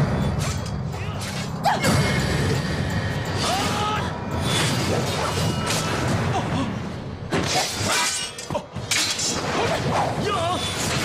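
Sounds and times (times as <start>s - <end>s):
background music: 0.0s - 11.0s
swords swishing and clashing: 7.3s - 11.0s.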